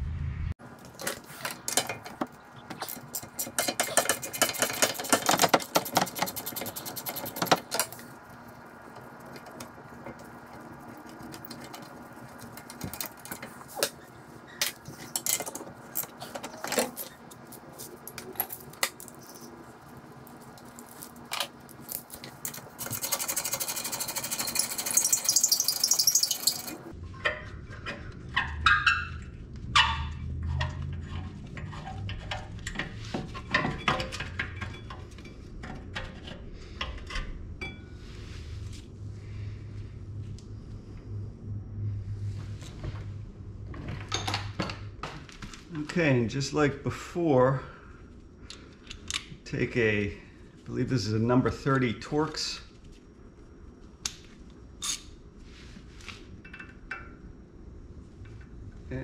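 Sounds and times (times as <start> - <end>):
metal tools clinking: 20.8 - 26.9.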